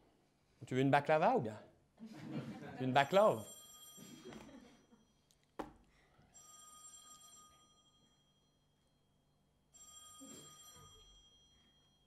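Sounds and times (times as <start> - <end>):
electronic telephone ringtone: 3.5 - 5.1, 6.4 - 8.6, 9.8 - 12.0.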